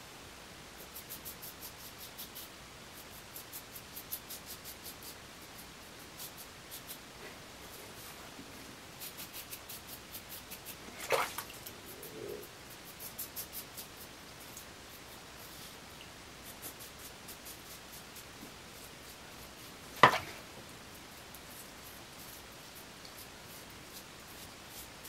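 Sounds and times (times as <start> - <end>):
razor knocks: 20.0 - 20.4.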